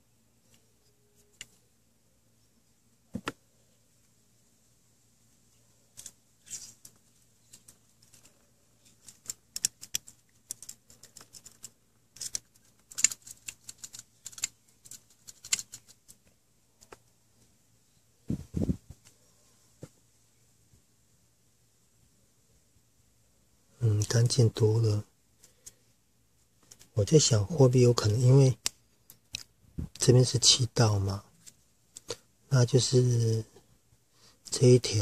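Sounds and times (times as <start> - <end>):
small clicks: 9.0 - 16.2.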